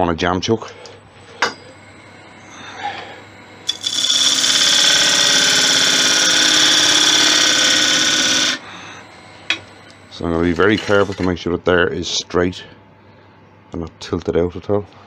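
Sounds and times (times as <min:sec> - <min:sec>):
gouge cutting spinning wooden bowl: 0:03.7 - 0:08.6.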